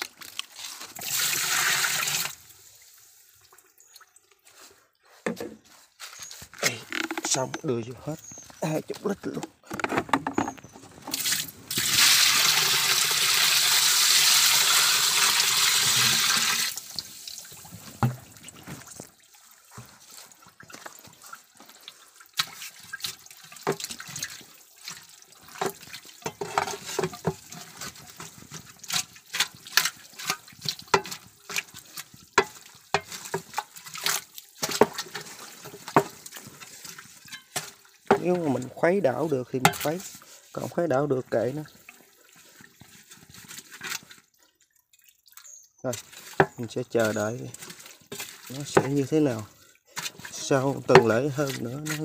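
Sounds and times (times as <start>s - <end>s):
liquid gushing into barrel: 0.0s - 3.7s, 9.3s - 52.0s
hoe knocking and splashing in mash: 25.0s - 38.7s, 39.6s - 40.1s, 46.0s - 52.0s.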